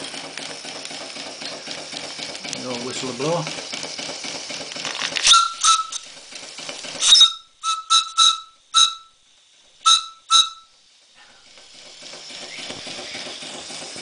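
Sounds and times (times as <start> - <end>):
steam whistle toots: 5.2 - 6.1, 7.0 - 11.3.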